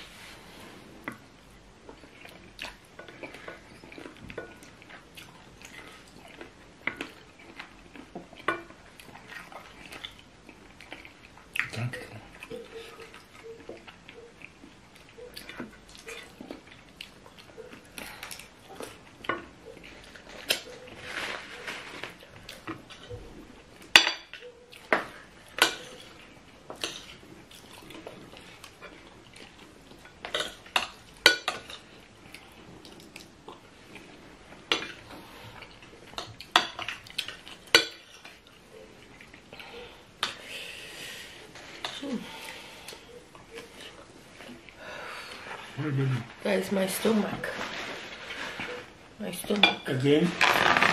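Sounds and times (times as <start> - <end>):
spoons clinking on plates: 23.9 - 26.1, 37.7 - 38.4.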